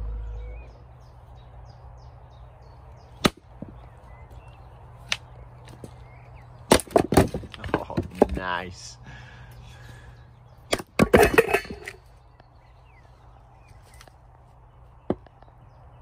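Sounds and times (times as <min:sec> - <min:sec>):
birds chirping: 0:00.0 - 0:16.0
hatchet chopping wood: 0:06.7 - 0:08.3, 0:10.7 - 0:11.8.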